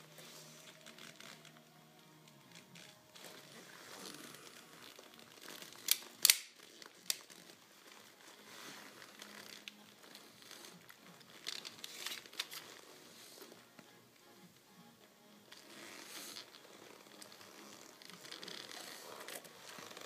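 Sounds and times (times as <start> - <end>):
leather clothing rustling: 0.1 - 1.6, 2.5 - 13.6, 15.6 - 20.0
sharp clicks: 5.8 - 7.3.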